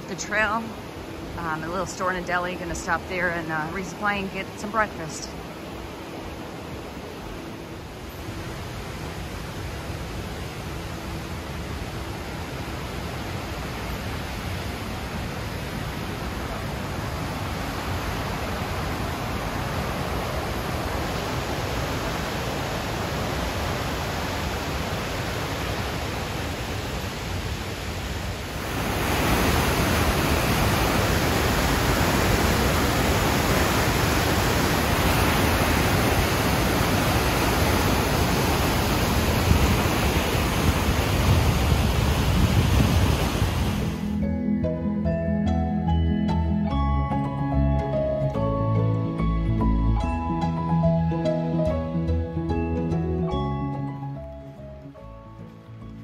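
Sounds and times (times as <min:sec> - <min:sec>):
river water rushing: 0:00.0 - 0:44.2.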